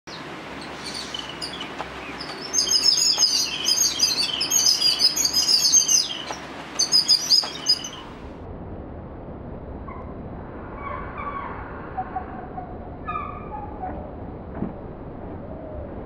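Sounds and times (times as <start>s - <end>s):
songbird singing: 0.1s - 8.3s.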